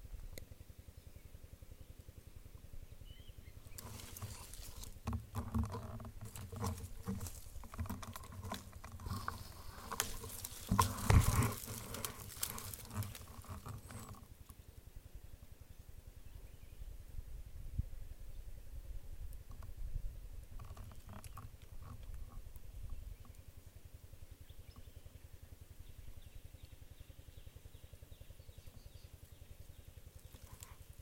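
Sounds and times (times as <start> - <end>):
rustling and crackling: 3.6 - 14.3, 30.0 - 31.0.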